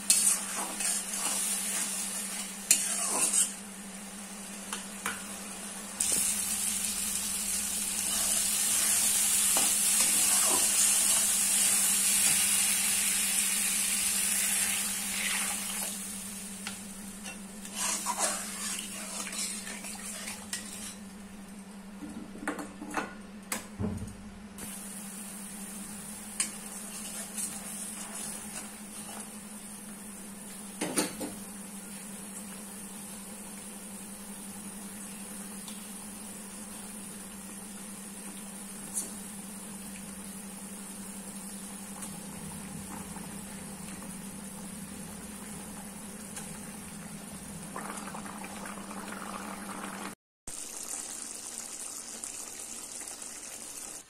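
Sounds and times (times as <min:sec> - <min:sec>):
gravy sizzling and bubbling: 0:00.0 - 0:21.6, 0:24.6 - 0:54.0
metal spatula scraping a pan: 0:00.1 - 0:03.6, 0:17.6 - 0:21.0.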